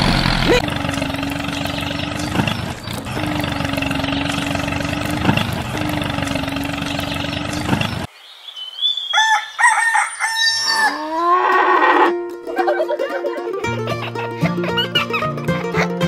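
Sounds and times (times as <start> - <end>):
rooster crowing: 9.1 - 11.6.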